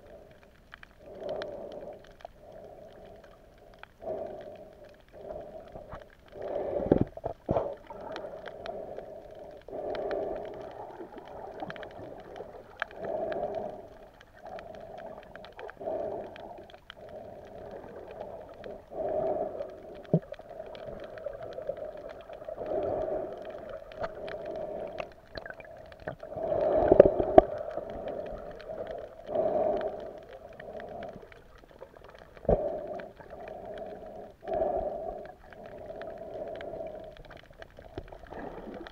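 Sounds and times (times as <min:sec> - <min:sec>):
muffled underwater hum: 0:00.0 - 0:38.9.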